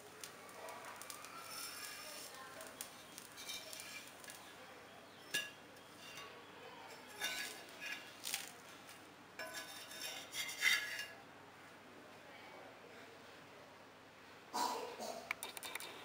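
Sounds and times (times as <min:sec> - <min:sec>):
steel spatula scraping iron griddle: 0:00.9 - 0:08.8, 0:09.4 - 0:11.2.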